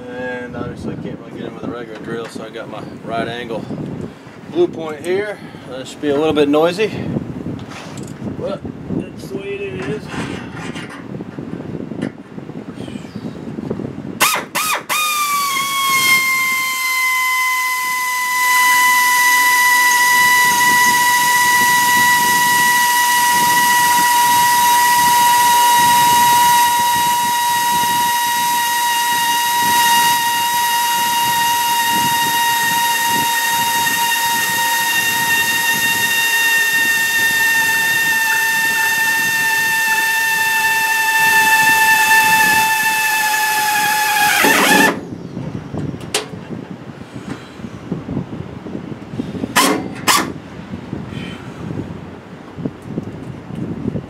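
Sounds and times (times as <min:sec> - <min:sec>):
air drill whining: 0:14.2 - 0:45.1
drill clicks: 0:17.8 - 0:45.0.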